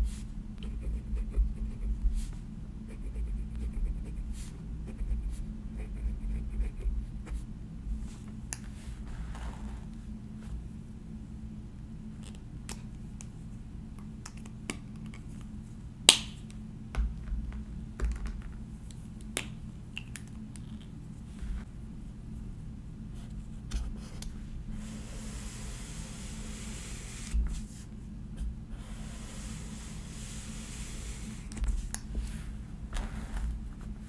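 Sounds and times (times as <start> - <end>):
pens knocking on desk: 17.0 - 18.6
highlighter rubbing on paper: 24.8 - 27.9, 28.7 - 31.8.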